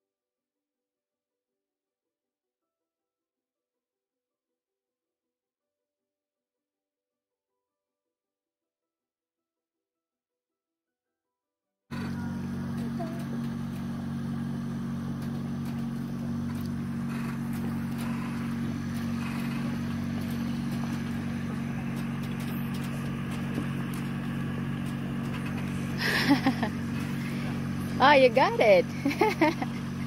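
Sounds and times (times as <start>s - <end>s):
engine humming steadily: 11.9s - 30.0s.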